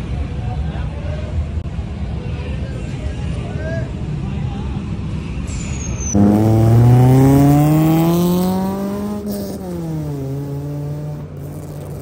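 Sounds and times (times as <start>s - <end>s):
car engine revving: 6.1s - 12.0s.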